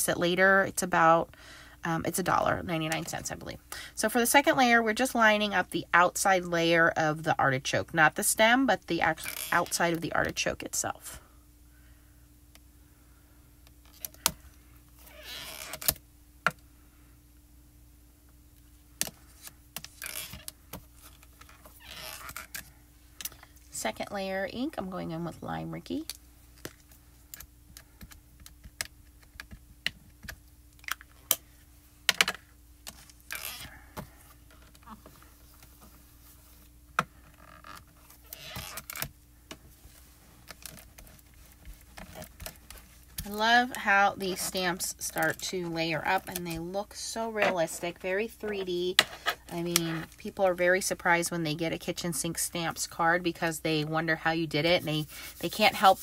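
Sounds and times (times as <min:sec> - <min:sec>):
faint steady hum: 0:00.0 - 0:56.0
soft rubbing: 0:54.0 - 0:56.0
handling rustles: 0:54.7 - 0:56.0.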